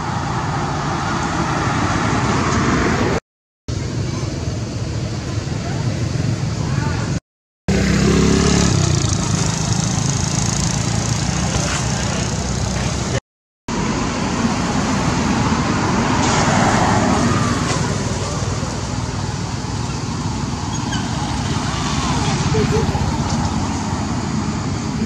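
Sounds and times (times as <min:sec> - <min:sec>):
steady road traffic: 0:00.0 - 0:25.0
vehicle passing: 0:07.7 - 0:13.2.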